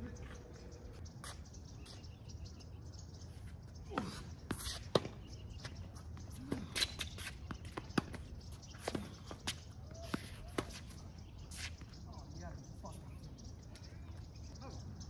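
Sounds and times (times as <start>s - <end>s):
tennis ball bouncing on court: 6.5s - 10.9s.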